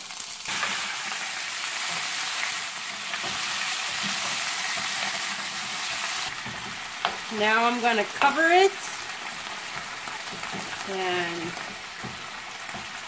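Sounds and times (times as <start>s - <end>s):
meat and onions sizzling: 0.0s - 13.0s.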